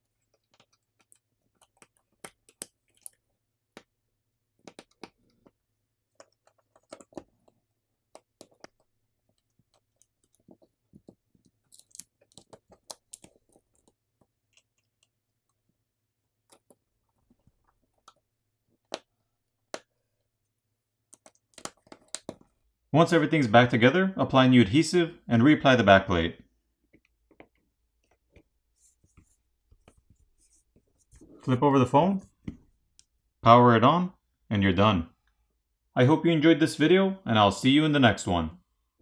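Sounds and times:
fingers handling phone parts: 0:00.0 - 0:22.7.

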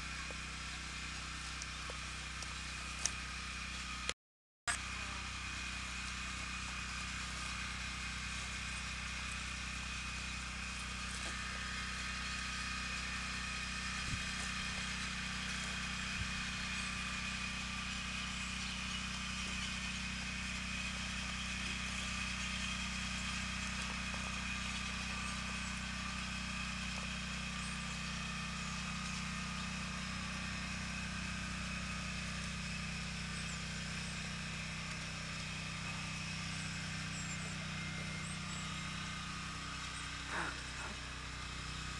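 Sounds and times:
steady mechanical hum: 0:00.0 - 0:41.9.

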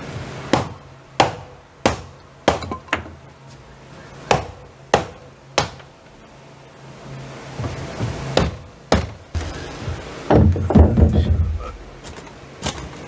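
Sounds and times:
hammer striking wood: 0:00.5 - 0:03.2, 0:04.3 - 0:05.9, 0:07.6 - 0:09.2, 0:10.3 - 0:11.6.

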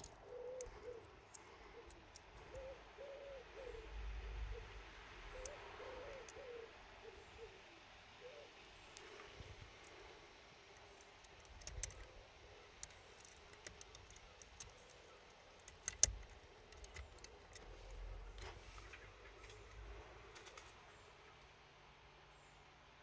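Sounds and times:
plastic fuse clicks and taps: 0:15.6 - 0:17.6.

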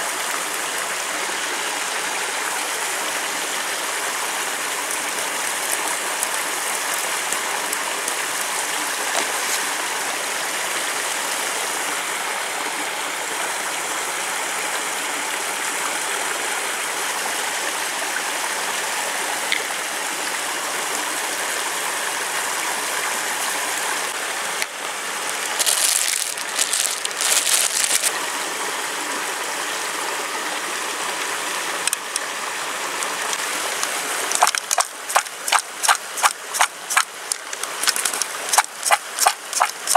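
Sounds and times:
rocky stream rushing: 0:00.0 - 0:39.9
sharp rustling or shaking: 0:25.3 - 0:28.1, 0:34.3 - 0:37.1, 0:37.7 - 0:39.9.

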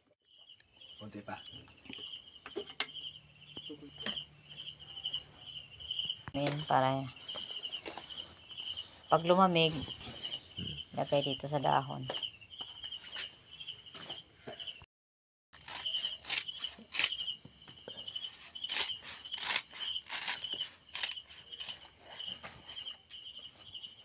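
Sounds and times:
insect chirping: 0:00.0 - 0:14.9, 0:15.6 - 0:24.0
scissors snipping leaves: 0:15.6 - 0:17.2, 0:18.6 - 0:21.8.

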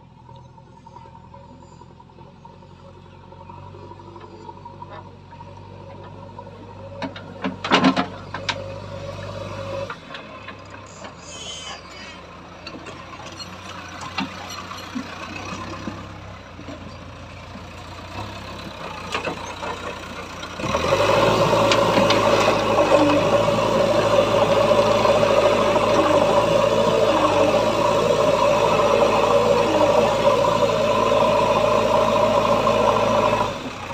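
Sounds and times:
diesel engine running: 0:00.0 - 0:33.9
loader bucket working soil: 0:03.5 - 0:33.9.

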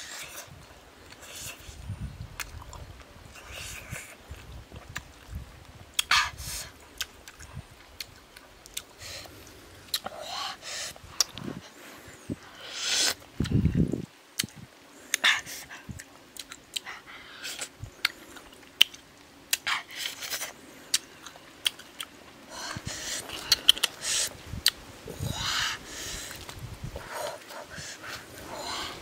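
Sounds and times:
person chewing and smacking: 0:09.9 - 0:10.1, 0:20.9 - 0:22.1, 0:23.2 - 0:24.0.

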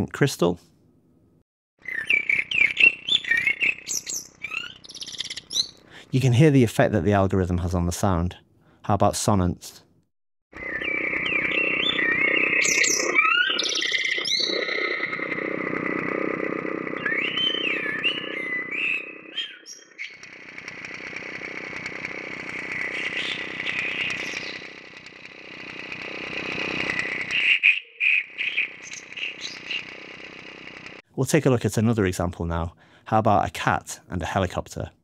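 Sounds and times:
warbling bird-like chirps: 0:01.8 - 0:05.8, 0:10.6 - 0:20.5, 0:22.5 - 0:24.9, 0:26.8 - 0:30.0
steady engine-like drone: 0:10.6 - 0:27.4, 0:28.3 - 0:31.0.

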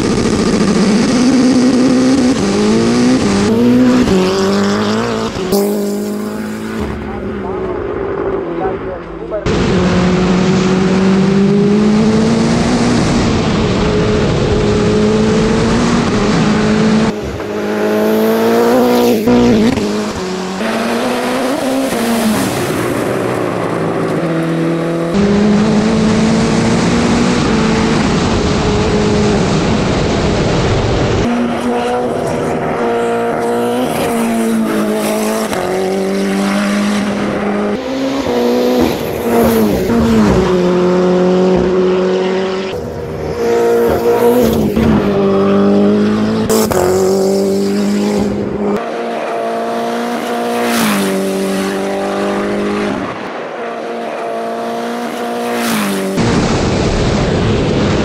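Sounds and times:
race car engine revving high: 0:00.0 - 0:58.0.

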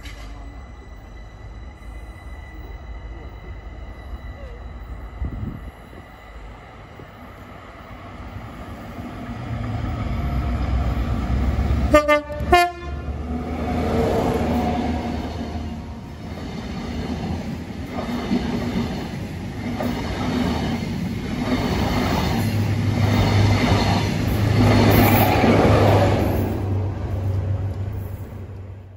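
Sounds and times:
train horn toots: 0:11.8 - 0:13.3.

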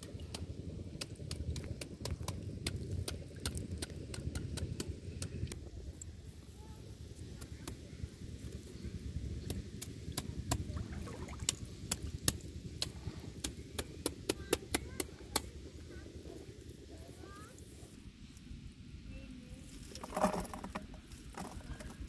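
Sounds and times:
low steady rumble: 0:00.0 - 0:22.0.

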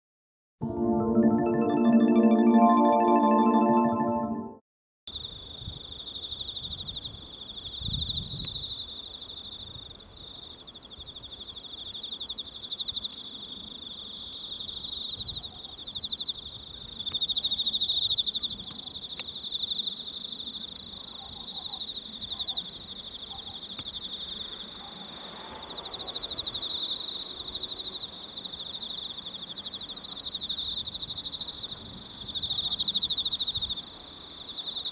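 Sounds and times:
piano music: 0:00.6 - 0:04.6
insects trilling: 0:05.1 - 0:34.9.

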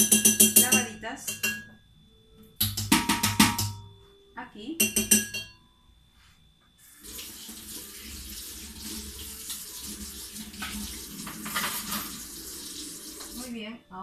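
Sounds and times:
tap water running into sink: 0:07.0 - 0:13.4.

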